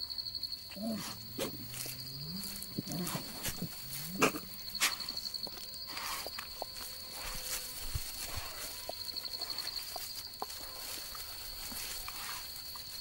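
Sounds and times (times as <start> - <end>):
insect trilling: 0.0 - 13.0.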